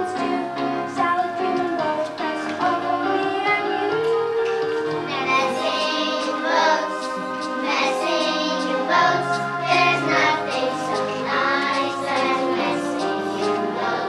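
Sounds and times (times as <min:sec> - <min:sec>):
instrumental accompaniment: 0:00.0 - 0:14.0
children singing together: 0:04.7 - 0:14.0.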